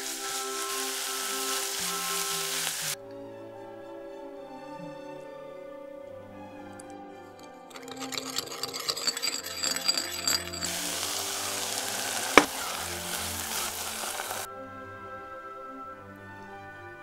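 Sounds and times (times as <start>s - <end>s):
filling sizzling in saucepan: 0.0s - 3.0s, 7.4s - 14.5s
soft background music: 0.0s - 8.1s, 10.8s - 17.0s
metal spoon clinking in bowl: 7.4s - 12.5s.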